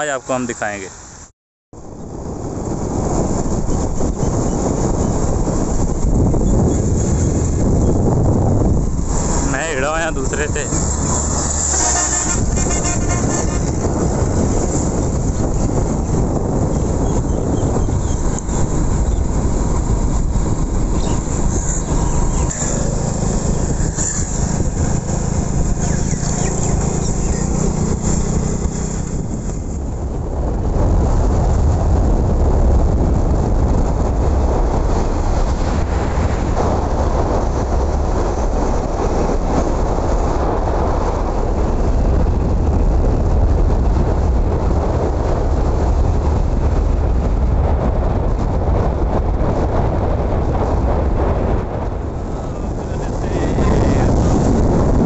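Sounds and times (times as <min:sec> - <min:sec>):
road and wind noise: 0:00.0 - 0:55.0
wind rumble on microphone: 0:00.0 - 0:55.0
motorcycle engine running: 0:10.6 - 0:30.6.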